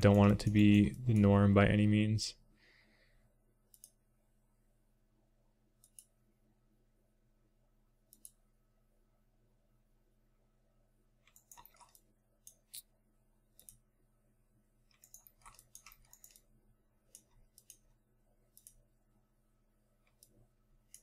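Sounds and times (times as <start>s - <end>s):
low steady hum: 0.0s - 21.0s
computer mouse clicks: 3.7s - 4.0s, 5.8s - 6.2s, 8.1s - 8.4s, 11.2s - 12.9s, 13.5s - 13.8s, 14.9s - 16.5s, 17.1s - 18.8s, 20.0s - 21.0s.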